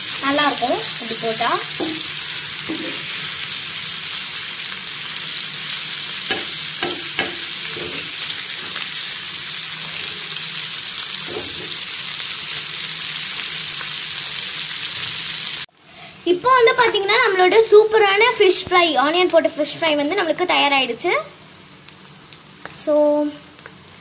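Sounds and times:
fish sizzling in hot oil: 0.0s - 15.7s.

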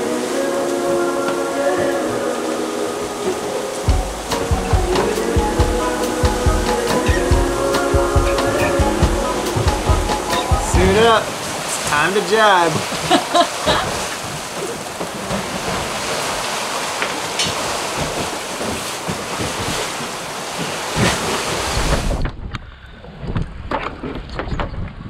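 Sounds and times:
heavy rain and wind hiss: 0.0s - 22.3s
sea washing past hull: 0.0s - 23.7s.

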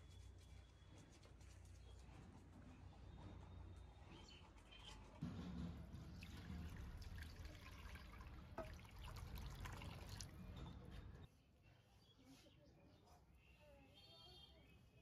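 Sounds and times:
milk pouring and splashing: 5.8s - 10.5s.

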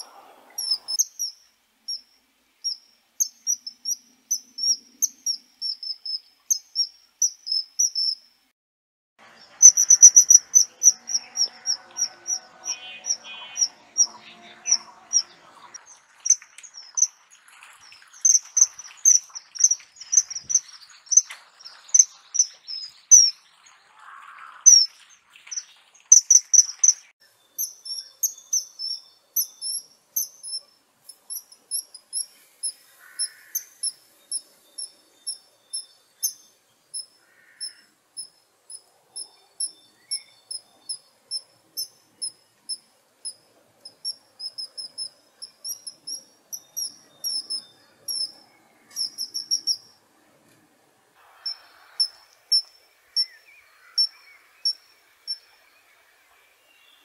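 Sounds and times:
kingfisher piping calls: 0.0s - 1.3s, 9.4s - 27.8s, 44.0s - 49.8s.

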